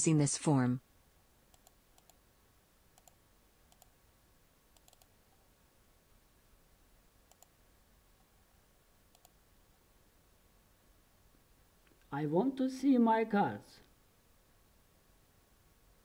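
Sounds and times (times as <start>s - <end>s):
computer mouse clicks: 1.5s - 2.2s, 2.9s - 4.0s, 4.7s - 5.4s, 7.3s - 7.6s, 9.1s - 9.4s.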